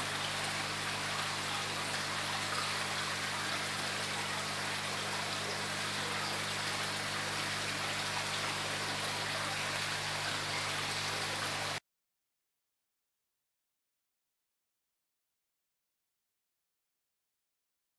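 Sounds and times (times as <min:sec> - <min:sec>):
pond water splashing and trickling: 0:00.0 - 0:11.8.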